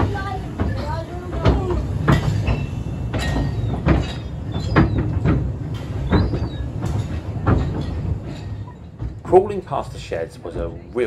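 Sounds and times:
railway carriage rumbling: 0:00.0 - 0:11.0
wheels clanking over rail joints: 0:00.0 - 0:11.0.

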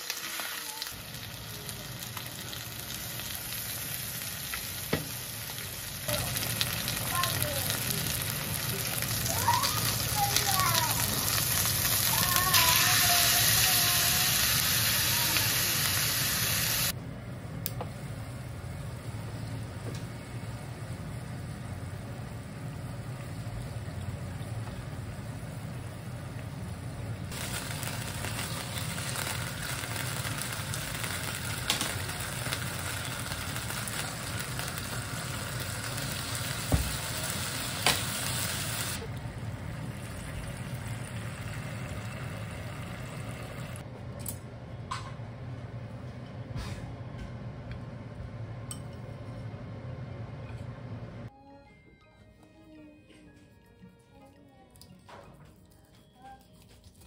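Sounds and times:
chicken sizzling in hot oil: 0:00.0 - 0:16.9, 0:27.2 - 0:43.8.

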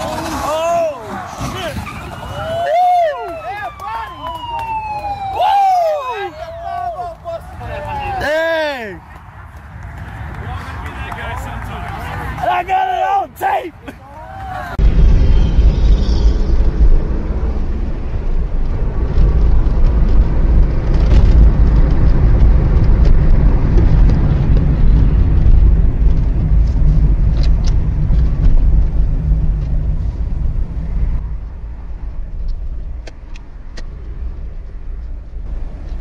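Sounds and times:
car interior road rumble: 0:14.4 - 0:36.0.

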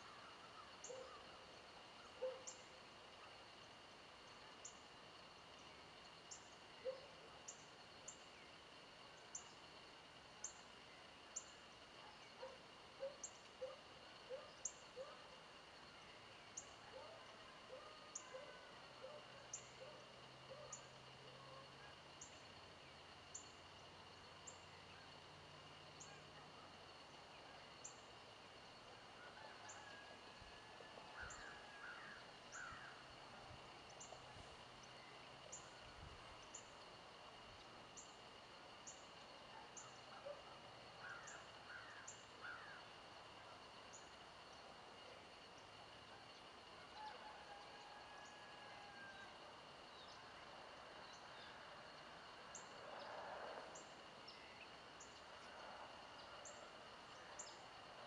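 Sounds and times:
bird calls: 0:00.0 - 0:01.3, 0:02.0 - 0:02.6
high insect drone: 0:00.0 - 0:58.0.

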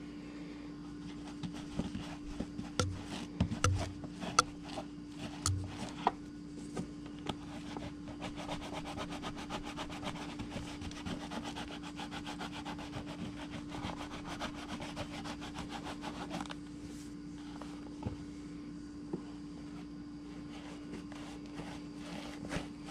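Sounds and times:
handling knocks: 0:02.8 - 0:04.5, 0:05.4 - 0:05.9
leather sheath being rubbed: 0:07.6 - 0:16.5, 0:20.4 - 0:22.9.

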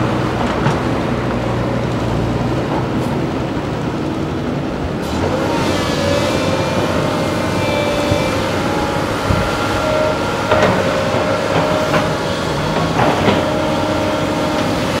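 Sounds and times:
excavator diesel engine running: 0:00.0 - 0:15.0
metallic clanks and squeals: 0:06.0 - 0:14.9.

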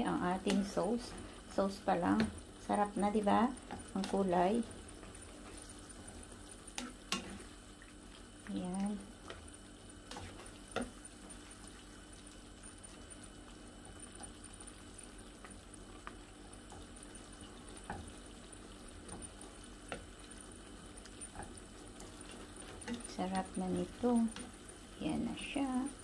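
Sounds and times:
sauce simmering in a pan: 0:00.2 - 0:26.0
spatula clicking and scraping: 0:21.0 - 0:24.7.

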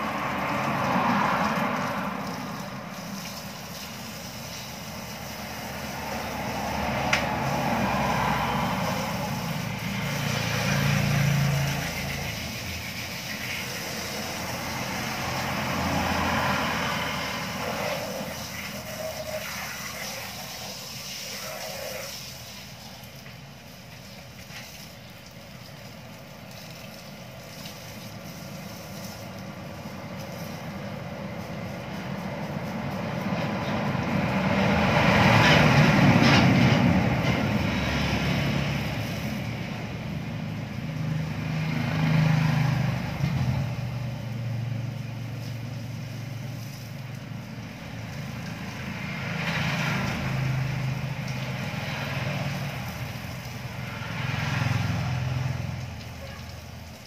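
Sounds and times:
motor vehicles passing: 0:00.0 - 0:57.0.

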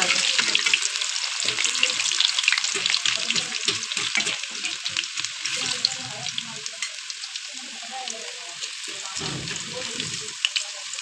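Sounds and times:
metal utensil stirring in oil: 0:00.0 - 0:07.1
potato slices sizzling in oil: 0:00.0 - 0:11.0.

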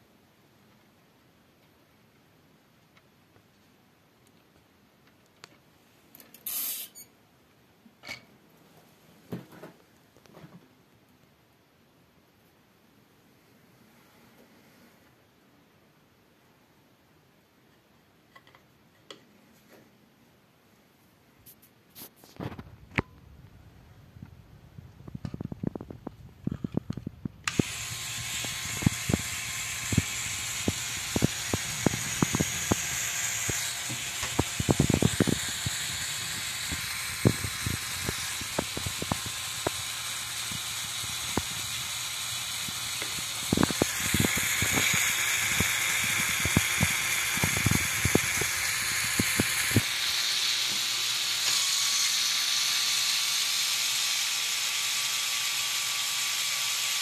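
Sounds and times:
toy electric motor whine: 0:06.4 - 0:07.0, 0:27.0 - 0:57.0
plastic gears clicking and knocking: 0:26.7 - 0:57.0.

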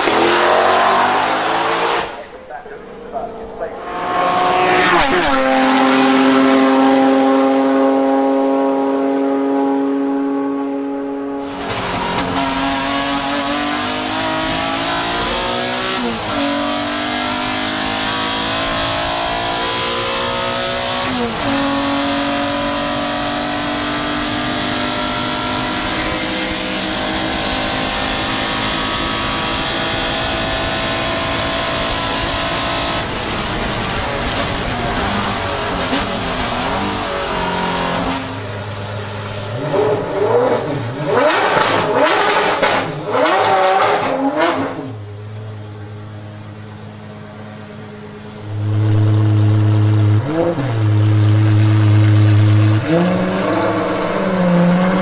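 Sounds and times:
race car engine at full throttle: 0:00.0 - 0:55.0
car engine revving in bursts: 0:03.2 - 0:38.4, 0:39.1 - 0:45.1.

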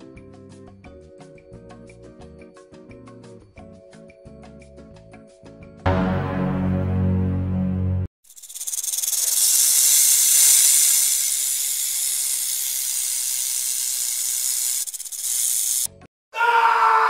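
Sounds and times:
snake hissing: 0:08.3 - 0:16.0.

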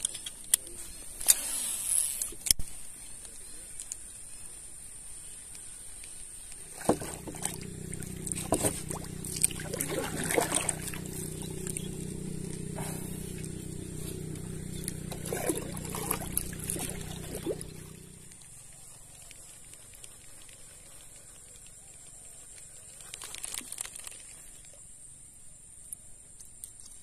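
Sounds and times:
small boat engine running: 0:06.6 - 0:19.7
gear knocking on wooden hull: 0:06.8 - 0:13.8.

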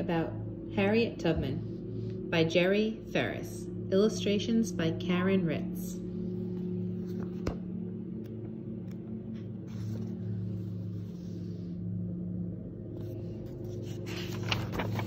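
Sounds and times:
low throbbing hum: 0:00.0 - 0:15.0
book pages rustling: 0:06.4 - 0:07.6, 0:09.3 - 0:11.8, 0:13.0 - 0:15.0.

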